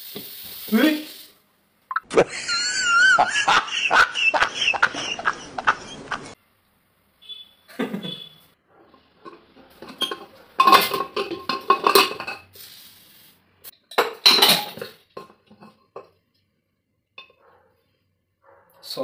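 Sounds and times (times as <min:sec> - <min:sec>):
spoon knocking and scraping in pot: 0:08.8 - 0:12.5, 0:13.8 - 0:16.2
pressure cooker lid clanking: 0:09.8 - 0:12.4.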